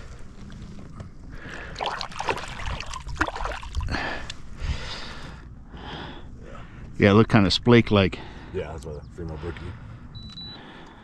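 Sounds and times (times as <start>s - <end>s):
water splashing and sloshing: 0.0s - 5.2s.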